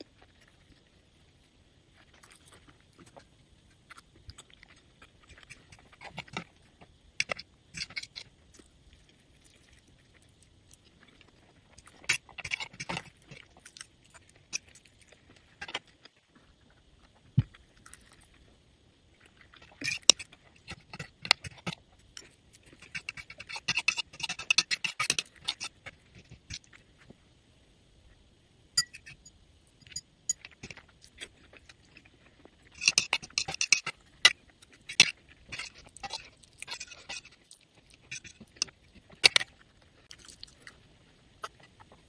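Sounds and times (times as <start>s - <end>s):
chewing noodles: 0.0s - 27.1s, 30.4s - 42.0s
metal fork clinking on plate: 28.8s - 30.4s.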